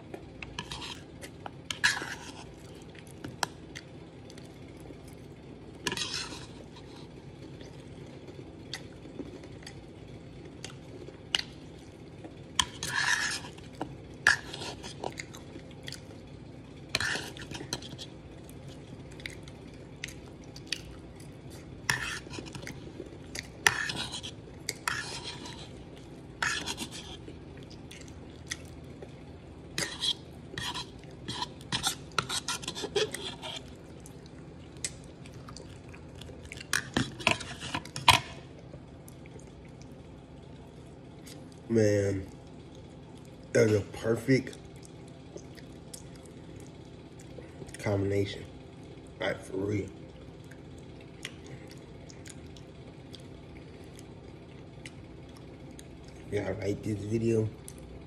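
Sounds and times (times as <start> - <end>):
fork scraping a bowl: 0.5 - 1.0, 1.7 - 2.5, 5.8 - 7.0, 12.6 - 13.7, 16.9 - 18.1, 21.9 - 22.7, 23.6 - 25.8, 26.4 - 27.2, 29.8 - 33.7, 36.7 - 38.4.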